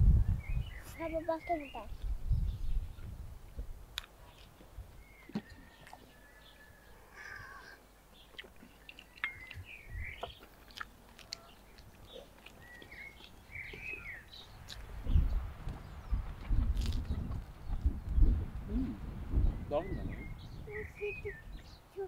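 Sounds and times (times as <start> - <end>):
birds calling: 0.4 - 3.2, 4.2 - 22.0
chewing: 8.2 - 14.9.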